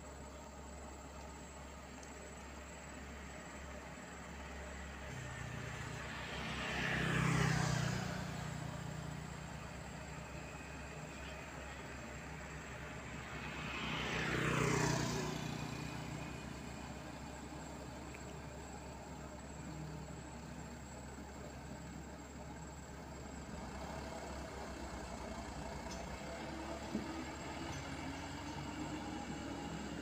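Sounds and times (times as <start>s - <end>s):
diesel engines running: 0.0s - 30.0s
vehicle passing by: 2.9s - 21.6s, 22.3s - 30.0s
dump truck engine revving: 23.6s - 30.0s.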